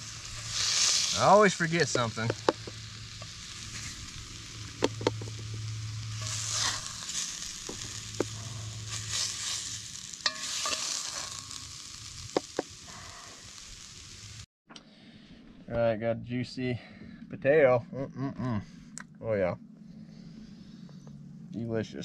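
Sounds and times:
food sizzling in a pot: 0.0 - 14.5
fork stirring in pot: 6.2 - 9.6, 10.2 - 11.5.

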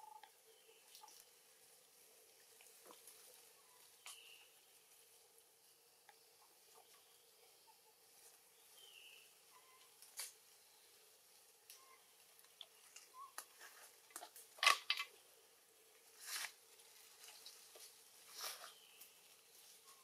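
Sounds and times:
rustling in grass and leaves: 8.0 - 14.7, 15.8 - 20.0.

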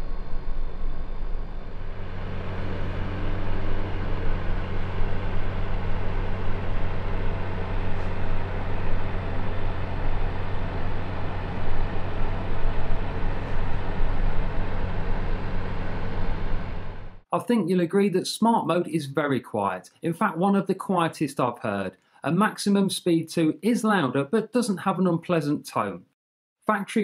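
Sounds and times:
dehumidifier compressor hum: 0.0 - 17.2
fan rushing: 0.0 - 17.2.

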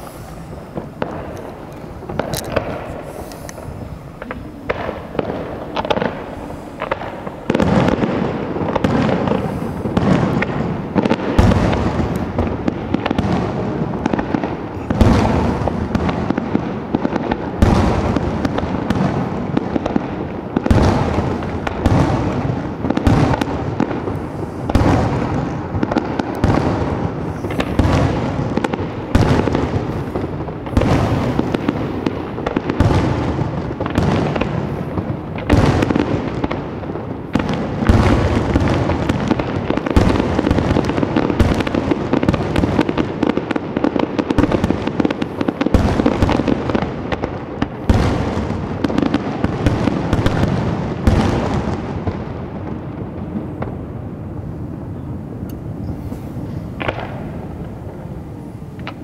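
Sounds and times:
fireworks bursting: 0.0 - 59.0.

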